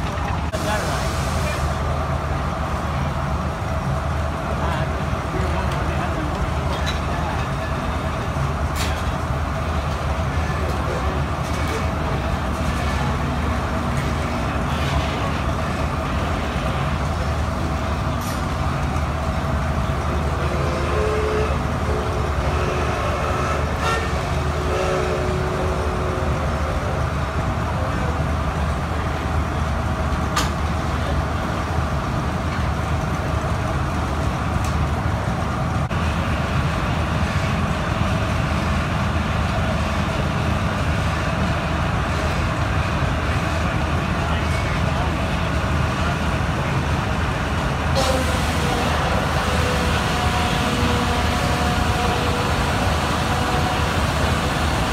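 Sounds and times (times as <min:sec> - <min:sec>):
sawmill machinery rumble: 0:00.0 - 0:54.9.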